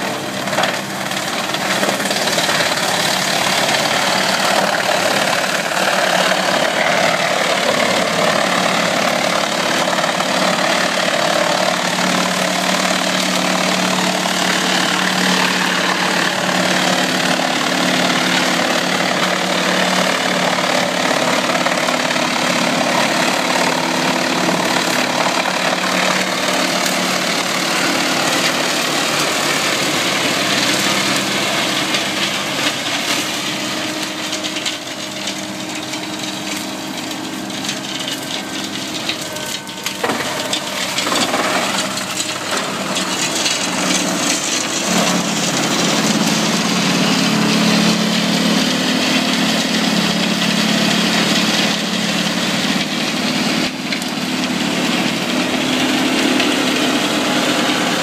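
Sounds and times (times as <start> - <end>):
engine running under load: 0.0 - 58.0
wood being shredded: 0.0 - 58.0.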